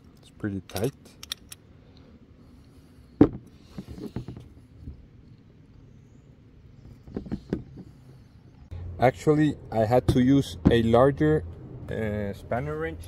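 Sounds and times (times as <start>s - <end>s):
wrench clicking against metal: 0.7s - 1.6s.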